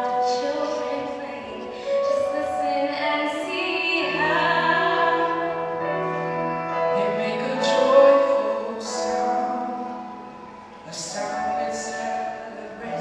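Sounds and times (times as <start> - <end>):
solo voices singing: 6.9 - 13.0.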